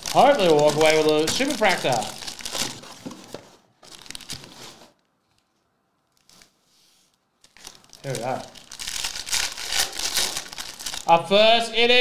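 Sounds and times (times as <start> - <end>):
foil packs tearing and crinkling: 0.0 - 3.1, 3.9 - 4.8, 7.4 - 11.2.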